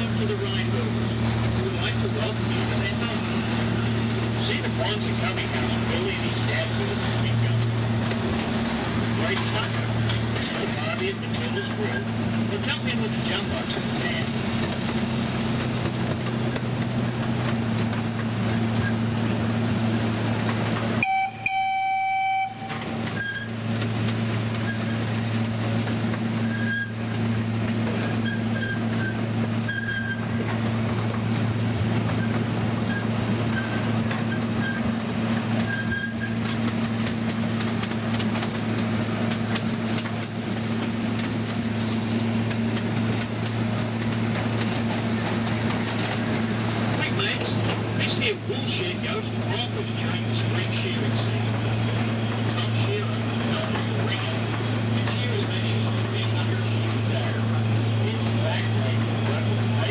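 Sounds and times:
tram engine droning: 0.0s - 59.9s
short horn toot: 21.0s - 22.8s.

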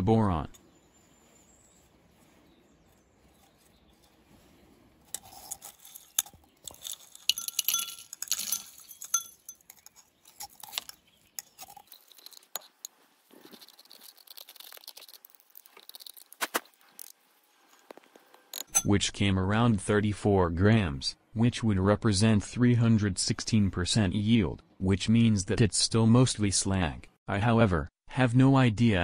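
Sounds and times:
grains pattering on glass: 5.1s - 17.1s.

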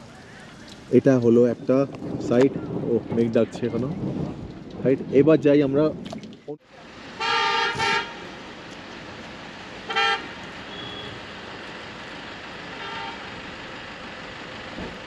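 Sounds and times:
vehicle horn toots: 7.2s - 8.2s, 9.9s - 11.2s, 12.8s - 13.3s.

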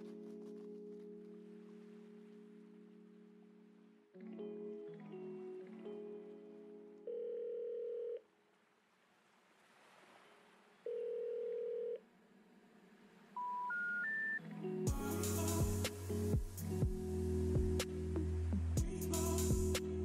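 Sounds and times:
telephone ringing tone: 7.0s - 8.2s, 10.9s - 12.0s
rising telephone beeps: 13.4s - 14.4s.

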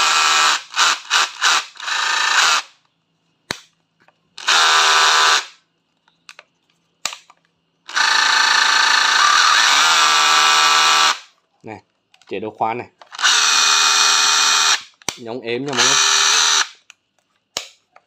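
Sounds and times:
cordless rotary hammer motor running: 0.0s - 2.6s, 4.4s - 5.5s, 7.9s - 11.2s, 13.2s - 14.8s, 15.7s - 16.7s.

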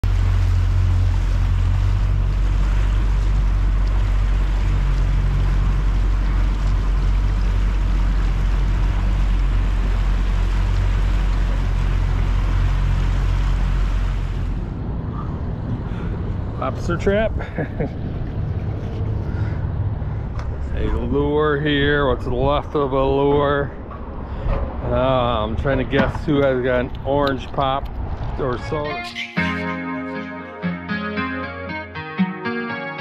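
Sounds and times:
rushing water: 0.0s - 14.6s
motorboat engine drone: 0.0s - 16.6s
wind: 0.0s - 29.5s.

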